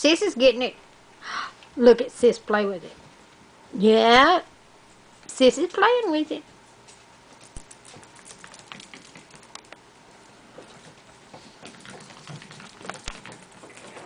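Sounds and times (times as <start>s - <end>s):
dog claws clicking on hard floor: 6.8s - 9.8s, 10.6s - 14.0s.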